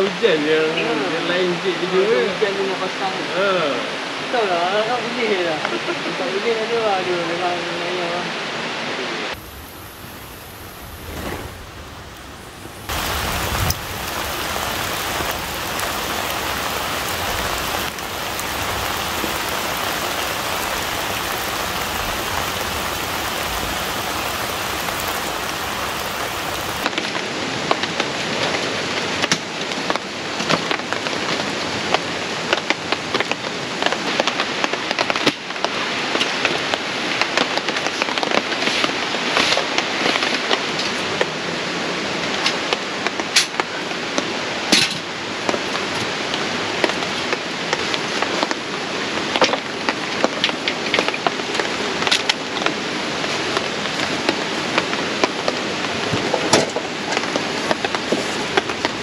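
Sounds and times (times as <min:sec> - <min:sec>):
rain hissing: 0:01.1 - 0:26.9, 0:45.2 - 0:59.0.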